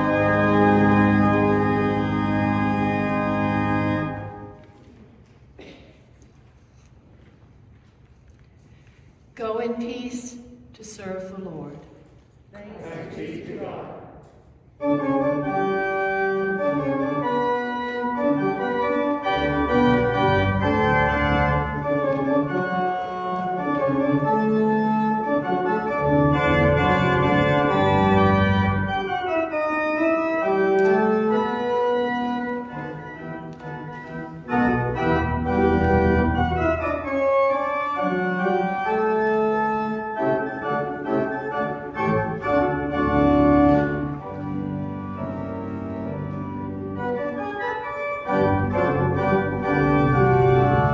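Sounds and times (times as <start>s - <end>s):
church organ chords: 0.0s - 4.6s, 14.8s - 50.9s.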